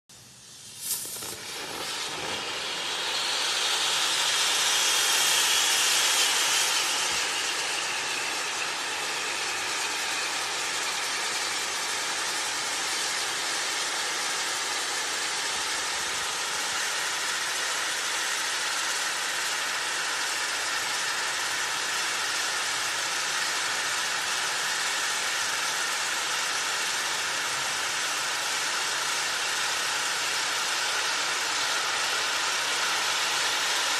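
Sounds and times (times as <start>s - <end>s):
spinning firework hissing: 0.1s - 33.9s
sharp pop: 0.7s - 2.6s.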